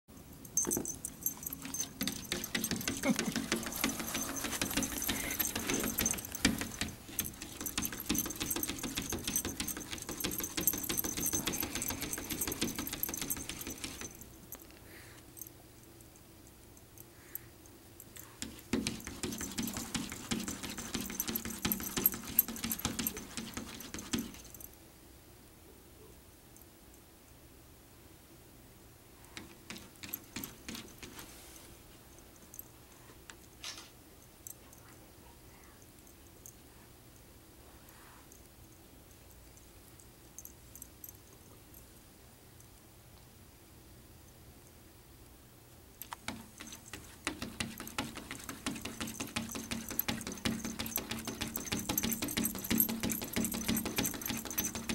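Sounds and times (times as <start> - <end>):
paw tapping on glass: 0.5 - 14.3, 18.2 - 24.6, 29.4 - 31.1, 46.1 - 54.9.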